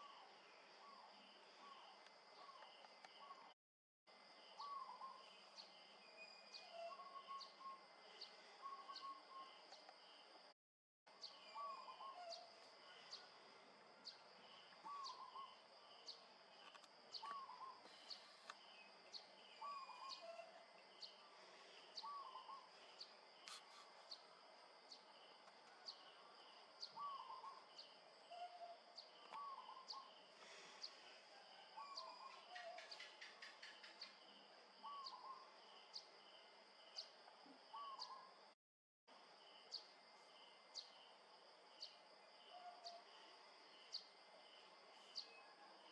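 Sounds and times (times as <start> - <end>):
high insect drone with ticks: 0.0 - 3.5, 4.3 - 10.4, 11.1 - 38.4, 39.1 - 45.9
faint bird calls: 4.5 - 5.5, 6.1 - 9.7, 11.3 - 13.4, 14.0 - 24.3, 25.7 - 36.1, 37.0 - 38.4, 41.8 - 43.3.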